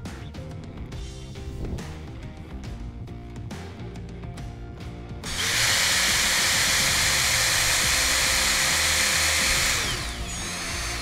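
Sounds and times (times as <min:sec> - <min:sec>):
cordless drill driving a screw: 0:05.2 - 0:11.0.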